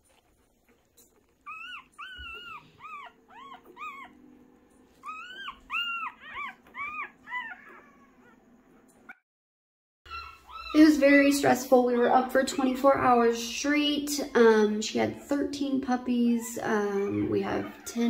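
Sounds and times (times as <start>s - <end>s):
puppies squealing: 1.2s - 4.4s, 5.0s - 9.2s, 10.1s - 11.2s, 16.2s - 18.0s.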